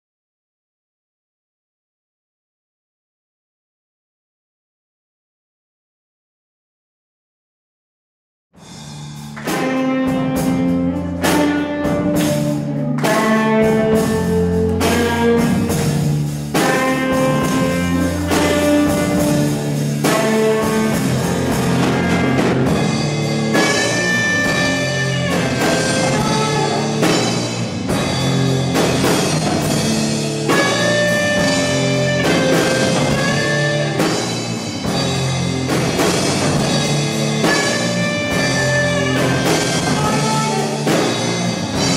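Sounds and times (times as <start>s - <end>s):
live rock band playing: 8.6s - 41.9s.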